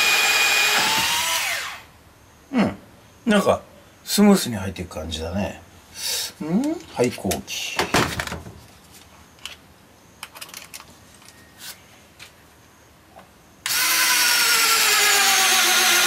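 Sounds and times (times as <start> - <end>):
cordless drill motor running: 0.0 - 1.9, 13.6 - 16.0.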